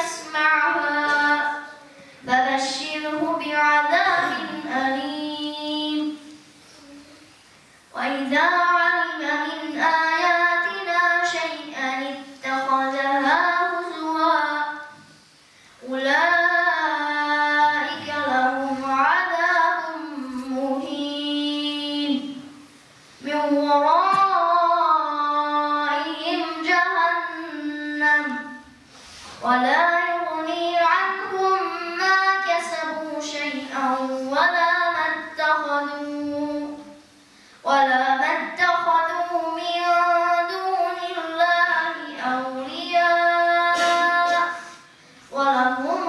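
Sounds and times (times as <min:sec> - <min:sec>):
boy chanting melodically: 0:00.0 - 0:07.3, 0:07.9 - 0:22.6, 0:23.2 - 0:28.8, 0:29.4 - 0:46.0.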